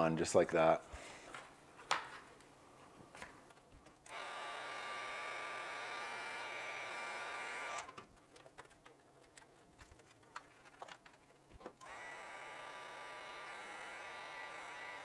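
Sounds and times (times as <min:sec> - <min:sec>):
heat gun blowing: 0:04.1 - 0:07.9, 0:11.8 - 0:15.0
wires clicking and tapping: 0:07.9 - 0:11.9.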